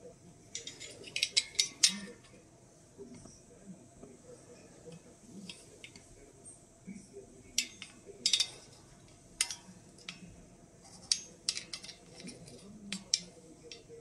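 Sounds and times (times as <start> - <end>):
glass tubes clinking: 0.5 - 2.4, 7.6 - 8.8, 10.9 - 14.0.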